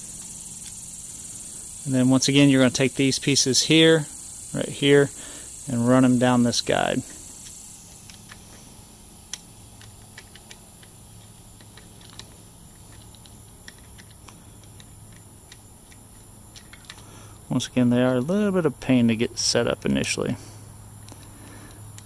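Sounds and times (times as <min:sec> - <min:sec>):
steady low hum: 0:00.0 - 0:22.0
small plastic clicks and ticks: 0:09.3 - 0:17.1, 0:21.0 - 0:22.0.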